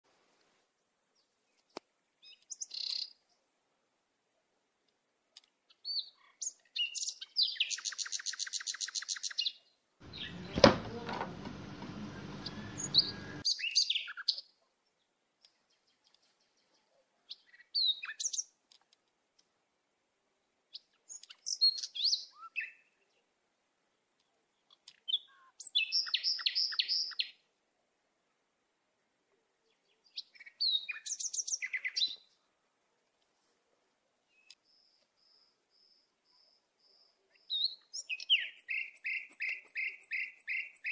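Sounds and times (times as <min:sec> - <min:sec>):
small bird chirping and trilling: 0:02.2 - 0:03.2, 0:05.7 - 0:10.6, 0:12.4 - 0:14.5, 0:15.7 - 0:18.6, 0:20.7 - 0:23.0, 0:24.6 - 0:27.4, 0:29.7 - 0:32.4, 0:34.3 - 0:40.9
sharp knock: 0:10.5 - 0:11.3.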